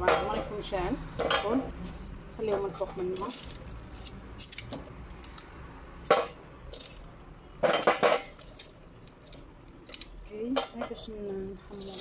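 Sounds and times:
charcoal clinking on metal sheet: 0:02.4 - 0:05.4, 0:06.1 - 0:12.0.

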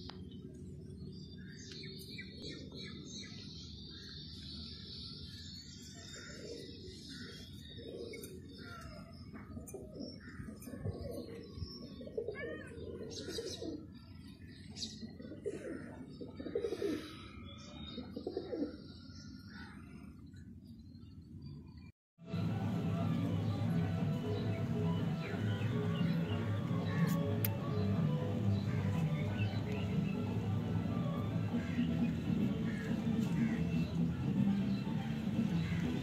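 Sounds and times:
small birds chirping: 0:00.0 - 0:21.9, 0:23.1 - 0:36.0
pigeons cooing: 0:06.1 - 0:14.0, 0:15.0 - 0:17.2, 0:18.0 - 0:18.8.

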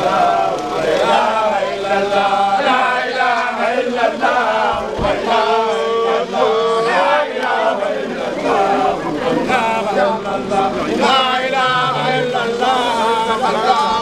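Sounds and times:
group chanting devotional song: 0:00.0 - 0:14.0.

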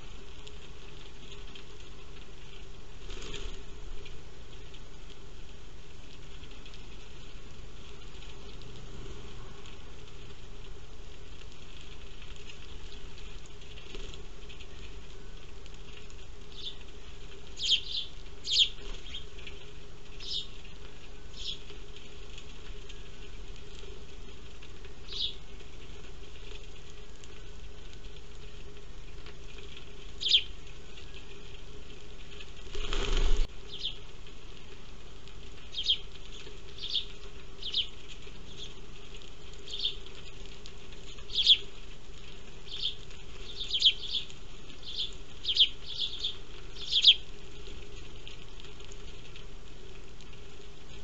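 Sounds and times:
faint steady hum: 0:00.0 - 0:51.0
wing flapping: 0:00.0 - 0:51.0
sparrows chirping: 0:11.8 - 0:34.1, 0:35.5 - 0:49.1.

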